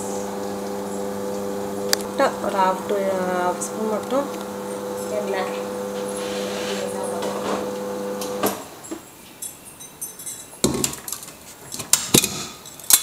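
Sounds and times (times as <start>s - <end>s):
steady hum: 0.0s - 8.0s.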